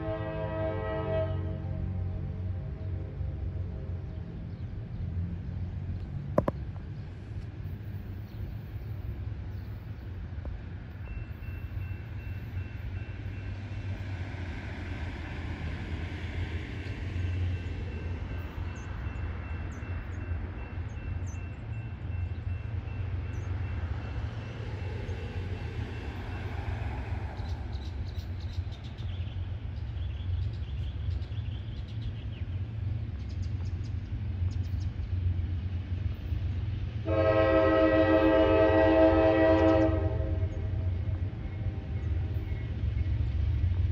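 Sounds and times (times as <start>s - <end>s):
locomotive air horn: 0.0s - 2.0s, 37.0s - 40.8s
diesel locomotives rumbling: 0.0s - 43.9s.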